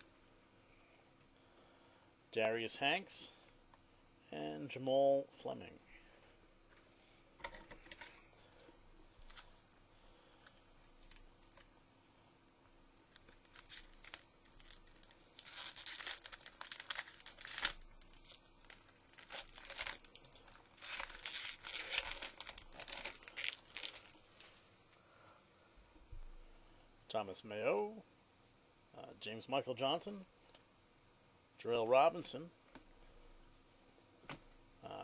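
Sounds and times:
foil wrapper crinkling and tearing: 0:09.2 - 0:09.6, 0:13.1 - 0:24.5.

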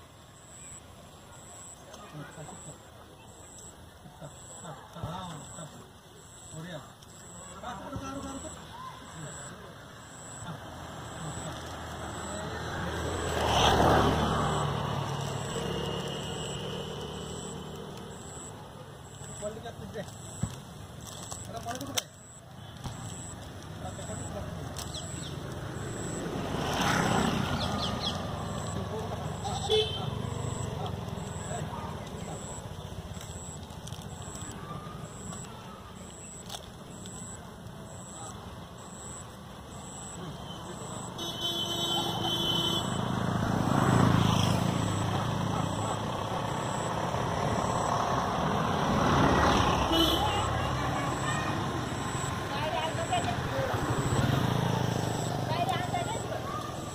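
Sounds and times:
motor vehicle passing by: 0:07.6 - 0:20.0, 0:23.1 - 0:35.6, 0:36.2 - 0:56.9
short high-pitched beeps: 0:44.4 - 0:48.2, 0:50.0 - 0:55.6.

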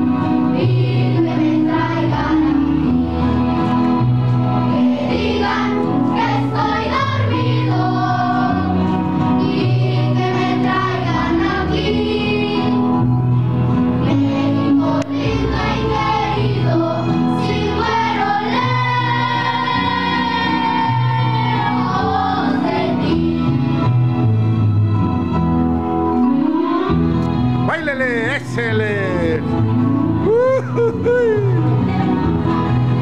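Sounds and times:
children's choir singing: 0:00.5 - 0:03.1, 0:04.7 - 0:13.0, 0:14.0 - 0:23.9
steady bass line: 0:27.0 - 0:33.0.

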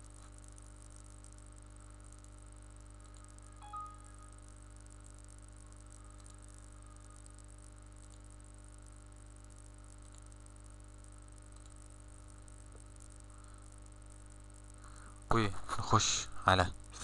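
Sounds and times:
electrical hum and hiss: 0:00.0 - 0:17.0
faint clicks: 0:03.0 - 0:03.5, 0:05.9 - 0:06.6, 0:10.0 - 0:10.6, 0:11.4 - 0:11.9.

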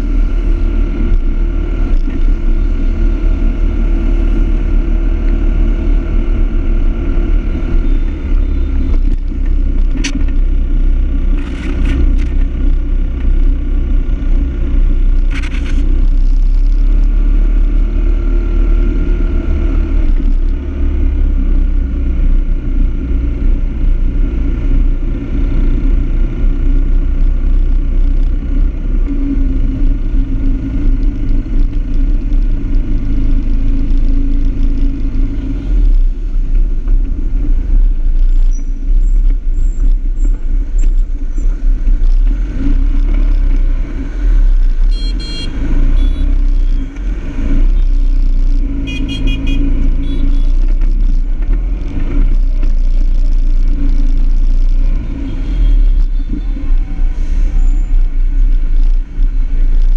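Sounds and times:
engine hum: 0:00.0 - 0:59.9
short horn beeps: 0:44.9 - 0:46.8, 0:48.9 - 0:50.6.

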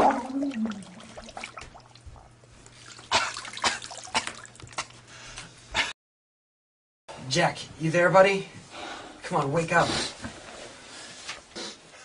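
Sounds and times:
water splashing and dripping: 0:00.0 - 0:04.9
low steady hum: 0:00.0 - 0:05.9.

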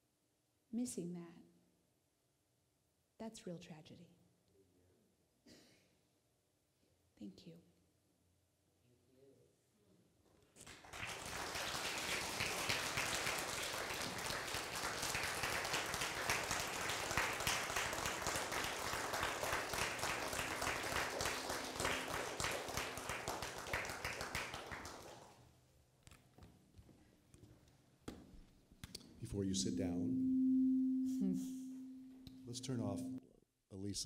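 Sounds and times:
audience applauding: 0:10.6 - 0:25.4.

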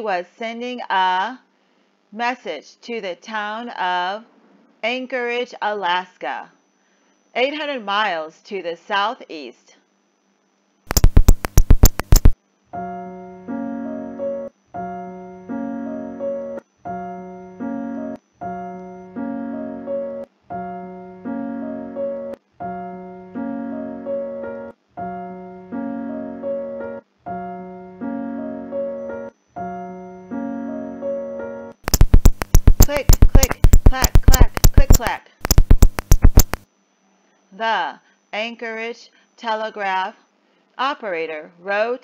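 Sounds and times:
telegraph key clicks: 0:10.9 - 0:12.4, 0:31.9 - 0:36.6.

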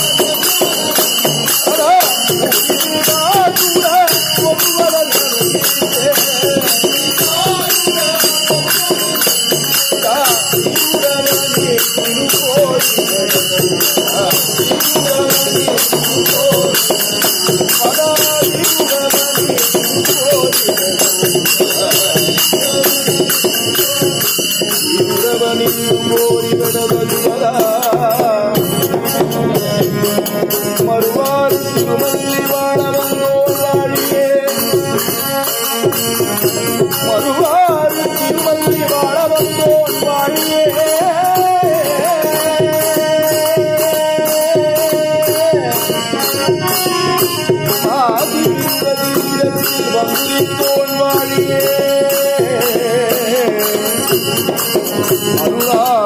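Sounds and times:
voices singing a hymn: 0:00.0 - 0:28.4
hand cymbals jingling: 0:00.0 - 0:56.0.

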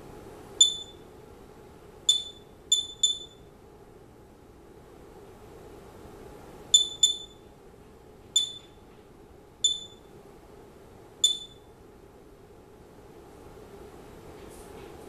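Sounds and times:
faint steady hum: 0:00.0 - 0:15.0
geiger counter beeps: 0:00.6 - 0:01.0, 0:02.1 - 0:03.5, 0:06.8 - 0:07.4, 0:08.4 - 0:08.7, 0:09.6 - 0:10.1, 0:11.2 - 0:11.7.

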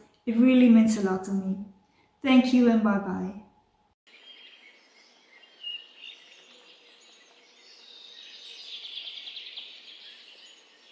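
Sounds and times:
birds chirping: 0:04.1 - 0:10.9.

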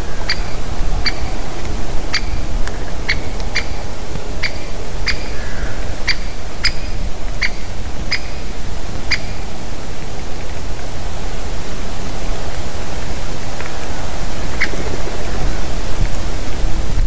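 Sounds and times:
steady low rumble: 0:00.0 - 0:17.0
woodpecker kik call: 0:00.1 - 0:01.4, 0:02.1 - 0:09.5, 0:14.5 - 0:15.6.

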